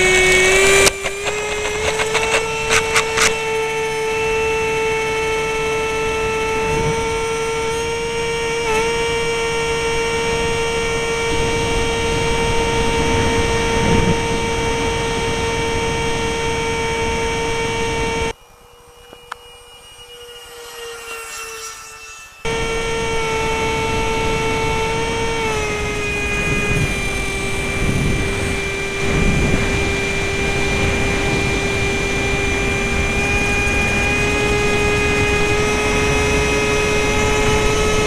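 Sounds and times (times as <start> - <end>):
electric ducted fans whining: 0.0 - 38.0.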